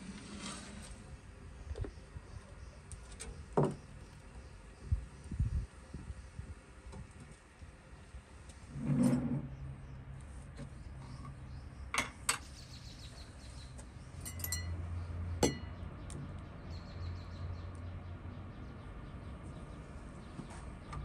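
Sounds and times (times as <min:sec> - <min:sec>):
glass jar clinking: 0:14.2 - 0:14.8, 0:15.4 - 0:15.7.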